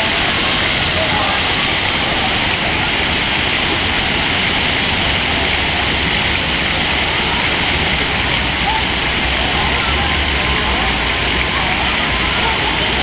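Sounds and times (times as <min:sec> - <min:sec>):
water splashing: 0:00.0 - 0:13.0.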